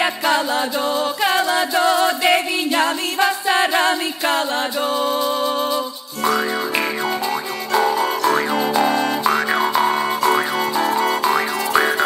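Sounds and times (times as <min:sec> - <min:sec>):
plucked strings: 0:06.2 - 0:12.0
steady drone: 0:06.2 - 0:12.0
twanging pitch sweeps: 0:06.2 - 0:12.0.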